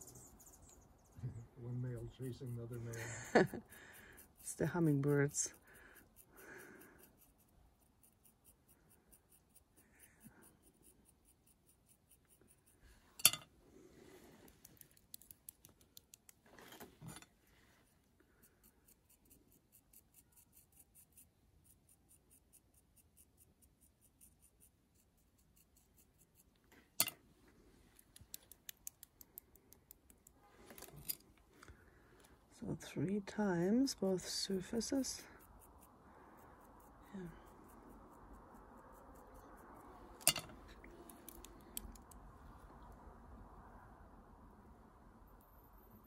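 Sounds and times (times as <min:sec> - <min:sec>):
tool scratching clay: 0:02.0 - 0:12.9, 0:18.4 - 0:26.7.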